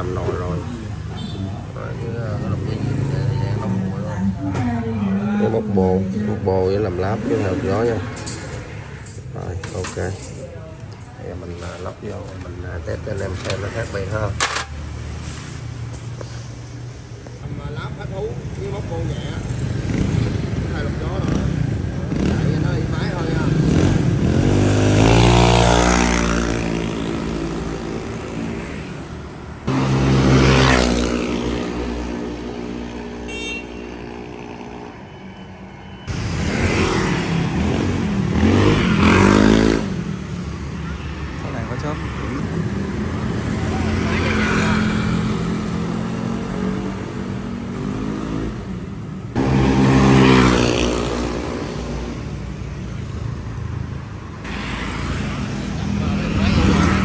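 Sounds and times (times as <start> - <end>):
motorbikes and cars passing: 0.0 - 57.0
scooter engine passing by: 29.7 - 33.0, 36.1 - 40.9, 43.3 - 46.9, 49.4 - 52.2
vehicle engine passing close: 49.3 - 52.3.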